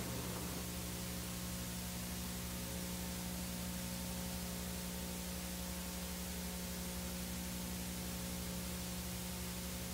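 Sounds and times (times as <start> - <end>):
static hiss: 0.0 - 3.6
low electrical hum: 0.0 - 9.9.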